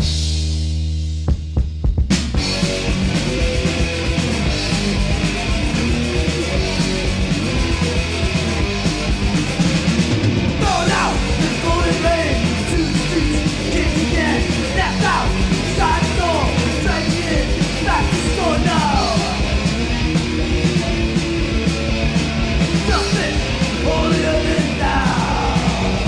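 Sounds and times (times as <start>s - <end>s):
distorted guitar bass and drums: 0.0s - 26.0s
shouted vocals: 10.6s - 19.5s, 22.8s - 26.0s.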